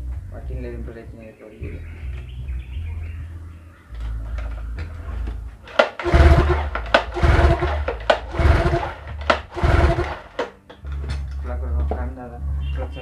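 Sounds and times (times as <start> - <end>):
engine revving bursts: 5.8 - 10.5
outboard engine running: 6.0 - 10.3.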